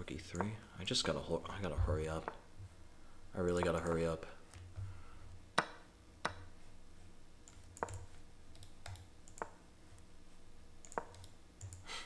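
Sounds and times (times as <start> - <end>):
faint low hum: 0.0 - 12.0
computer mouse clicking: 0.3 - 0.6, 3.5 - 4.7, 7.4 - 9.6, 10.8 - 11.9.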